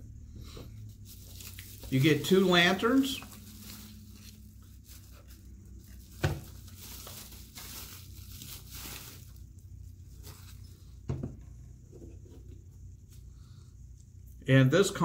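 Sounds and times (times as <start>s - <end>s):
bubble wrap crinkling: 0.8s - 10.8s.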